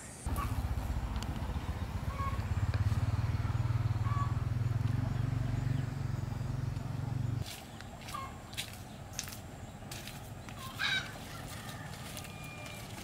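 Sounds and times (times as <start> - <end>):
small engine running: 0.3 - 7.4.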